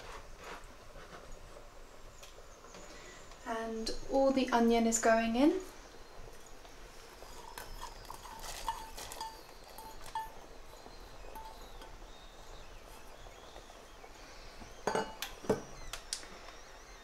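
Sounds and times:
spoon scraping metal bowl: 7.2 - 13.2
metallic clinks from bowl: 7.3 - 12.3
metal bowl clank: 7.3 - 13.1, 14.8 - 15.4.

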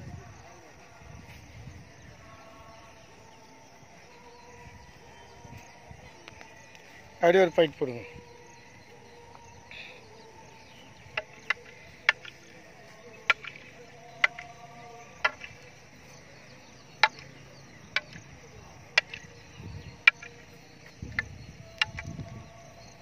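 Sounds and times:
wooden staffs clacking: 11.1 - 12.6, 13.2 - 14.6, 15.2 - 15.8, 17.0 - 18.3, 19.0 - 19.3, 20.0 - 22.1.

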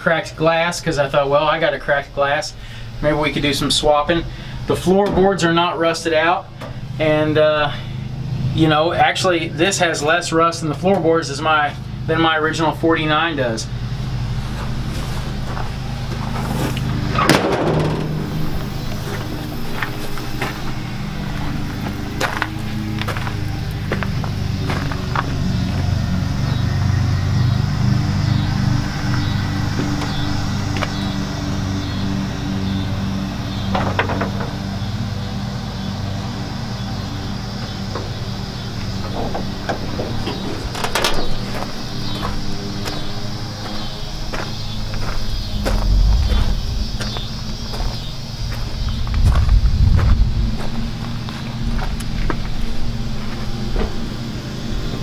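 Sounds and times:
steady low hum: 0.0 - 55.0
vehicle engine idling: 0.0 - 55.0
knocks and rattles of steel truck bed: 15.4 - 21.4, 33.6 - 34.8, 37.6 - 42.6
heavy thump: 17.2 - 20.5, 45.3 - 51.0.

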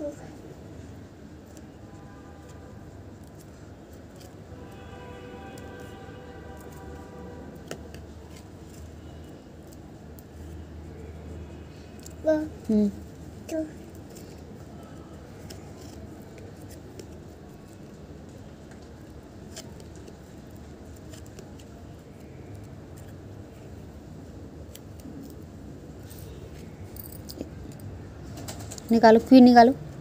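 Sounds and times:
cardboard book pages turning: 15.3 - 18.0, 18.8 - 23.3.

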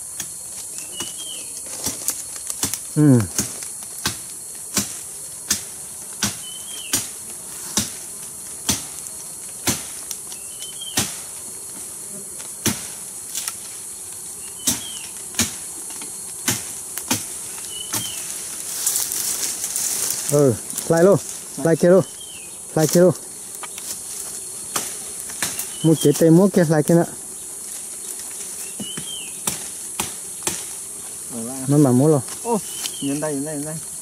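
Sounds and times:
forest insects droning: 0.0 - 34.0
faint bird chirp: 0.7 - 1.6, 32.6 - 33.3.

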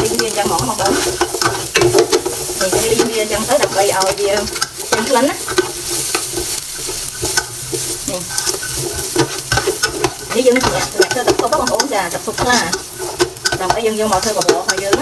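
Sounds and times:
food sizzling in oil: 0.0 - 15.0
spatula scraping metal pot: 0.0 - 15.0.

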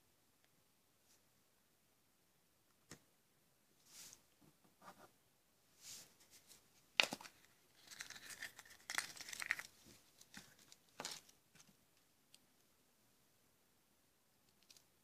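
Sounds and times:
paper crinkling and rustling: 6.3 - 11.8.

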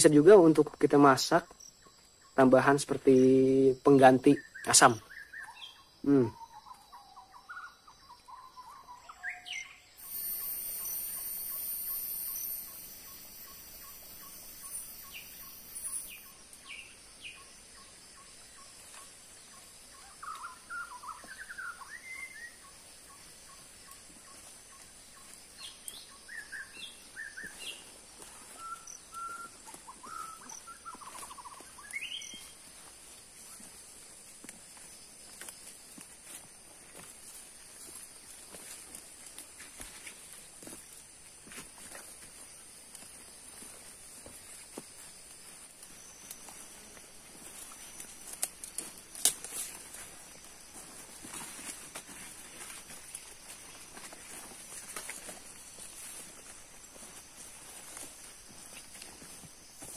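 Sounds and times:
birds chirping and calling: 1.4 - 33.7
high steady buzz: 10.0 - 16.1.

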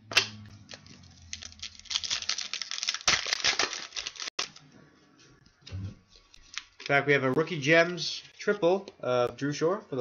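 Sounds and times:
foil card pack crinkling: 0.7 - 4.6.

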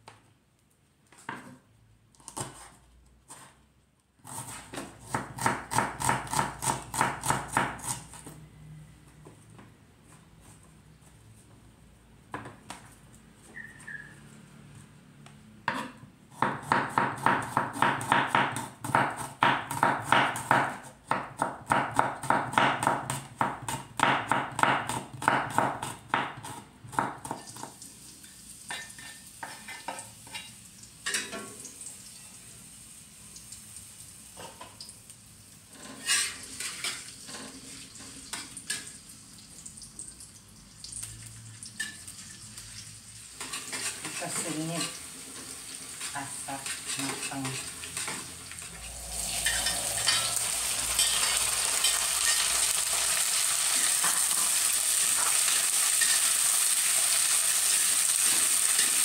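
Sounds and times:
knife chopping on wooden board: 4.3 - 8.1, 15.7 - 27.4
garlic sizzling in oil: 47.8 - 59.0.

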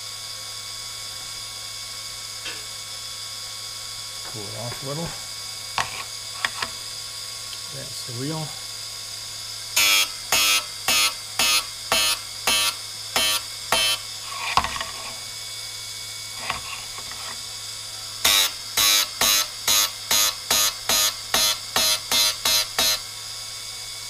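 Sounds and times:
grinder motor humming: 0.0 - 24.0
drill bit grinding strokes: 7.9 - 15.4, 16.3 - 23.1.

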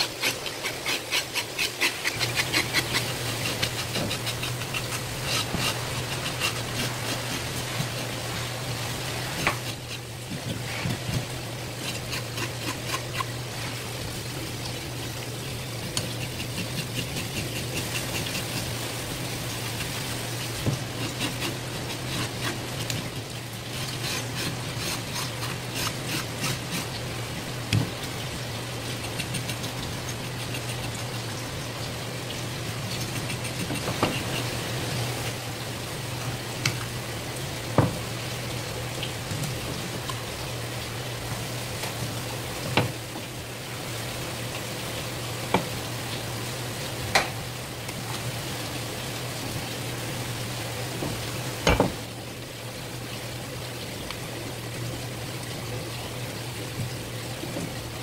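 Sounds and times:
knife scraping fish scales: 0.0 - 8.2, 9.2 - 13.3, 16.0 - 18.8, 19.4 - 23.1, 23.7 - 26.9
knocks on cutting board: 51.7 - 52.0.

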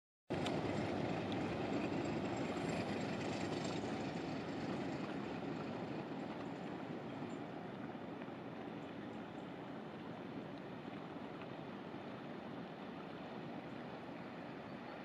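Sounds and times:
barge motor rumbling: 0.3 - 8.0.

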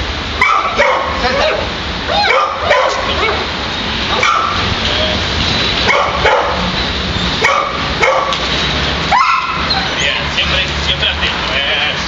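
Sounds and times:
dog barking and yelping: 0.4 - 3.5, 4.1 - 4.6, 5.8 - 6.7, 7.4 - 8.4, 9.1 - 10.0.

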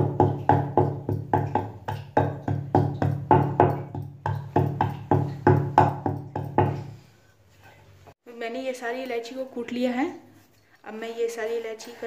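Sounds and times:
rolling pin knocking on wooden board: 0.0 - 6.9.

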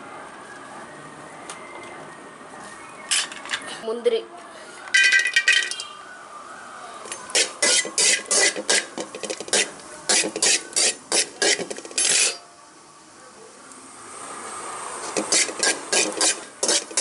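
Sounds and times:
metal spoon scraping metal pan: 7.2 - 12.5, 15.1 - 17.0.

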